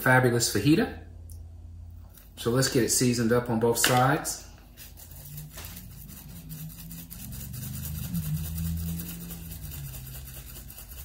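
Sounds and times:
low steady hum: 0.0 - 11.0
seasoning rattling from shaker: 5.5 - 11.0.

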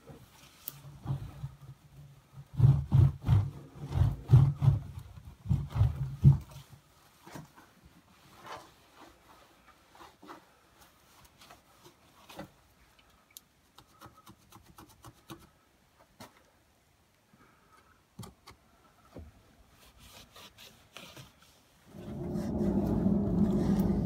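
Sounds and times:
cloth rubbing and wiping: 5.5 - 12.6, 19.7 - 24.0.

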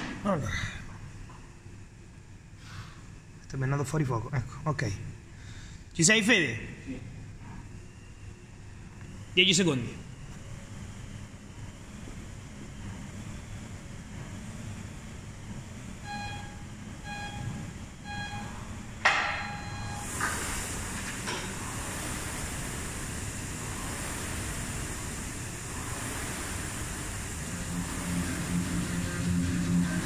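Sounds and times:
rowing machine fan whirring: 0.0 - 30.0
timer beeps: 16.1 - 18.6, 19.2 - 20.0.

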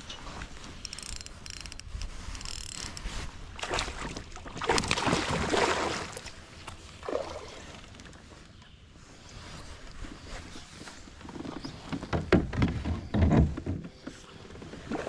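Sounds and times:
light clicks and rattles: 0.0 - 3.2
kayak paddle sloshing through water: 3.0 - 8.4.

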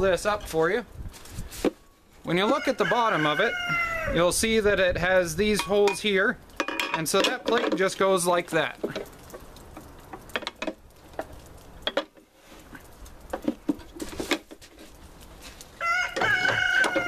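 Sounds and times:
rooster crowing: 2.5 - 4.2, 15.8 - 17.0
clicks and knocks of handled metal: 5.6 - 8.1, 8.8 - 17.0.

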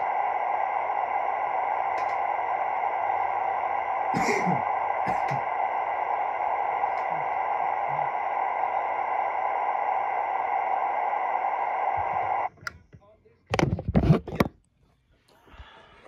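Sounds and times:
radio static hiss: 0.0 - 12.5
faint steady tones: 0.0 - 13.2.

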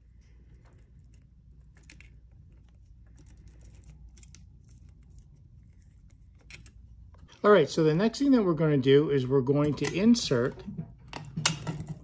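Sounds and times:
small clicks and rustling of wires: 0.0 - 7.5.

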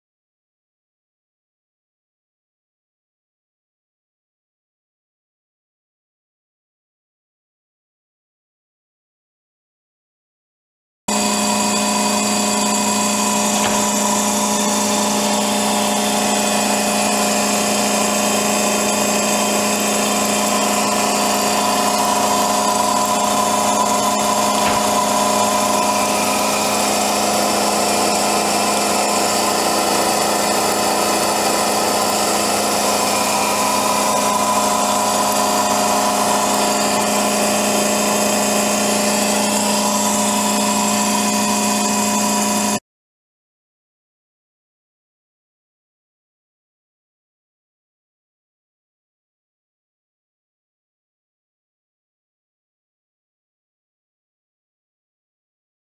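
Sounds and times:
centrifuge humming with whine: 11.1 - 42.7.

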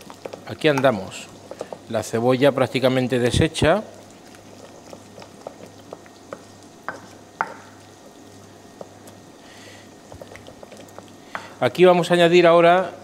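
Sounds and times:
onion sizzling in oil: 0.0 - 12.1.

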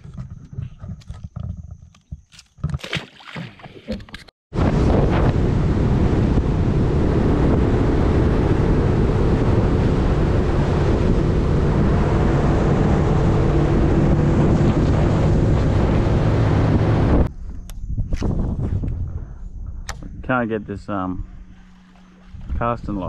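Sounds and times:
outboard motor running: 0.0 - 17.3
wind buffeting microphone: 4.5 - 23.0.

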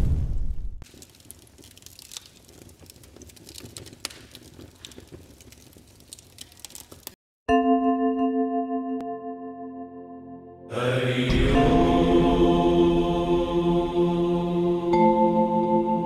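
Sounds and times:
fire crackling: 0.0 - 7.2.

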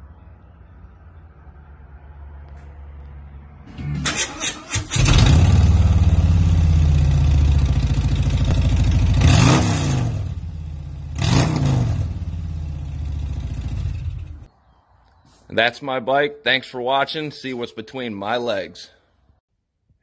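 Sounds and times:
motorcycle engine idling and revving: 4.7 - 14.5.

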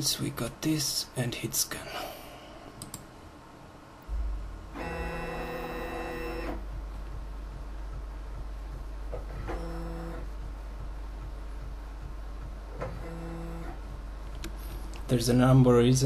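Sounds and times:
steady low hum: 0.0 - 16.0
stepper motor whine: 4.1 - 7.7.

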